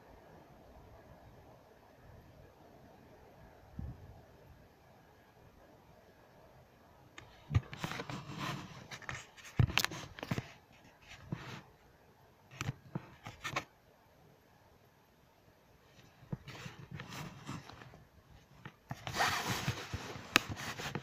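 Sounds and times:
scraping and tapping: 0:18.6 - 0:21.0.

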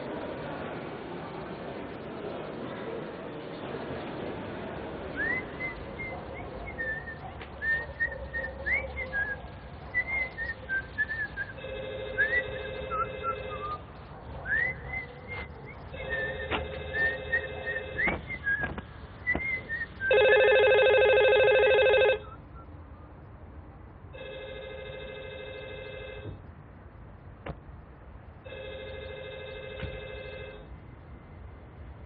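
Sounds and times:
telephone ringing: 0:11.6 - 0:13.8, 0:20.1 - 0:22.4, 0:24.2 - 0:26.4, 0:28.5 - 0:30.7.

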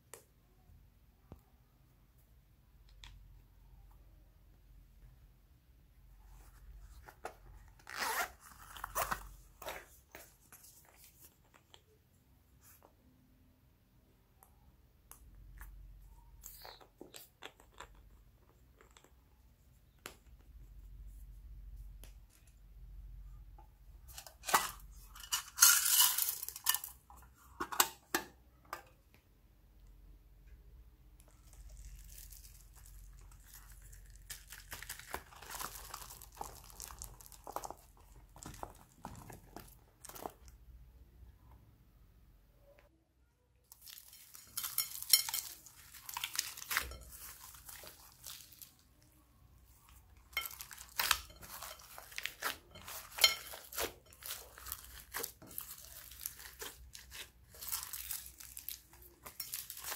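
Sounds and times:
zipper pulled: 0:07.7 - 0:09.8.

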